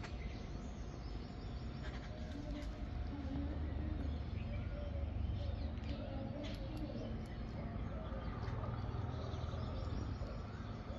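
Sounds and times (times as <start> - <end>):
faint bird chirps: 0.0 - 10.9
low outdoor rumble: 0.0 - 10.9
doves cooing: 1.6 - 10.9.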